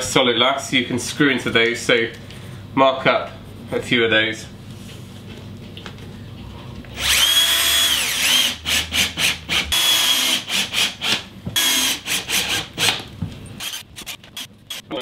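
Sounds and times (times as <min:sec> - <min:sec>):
cordless drill driving screws: 0:07.0 - 0:12.9, 0:13.6 - 0:14.9.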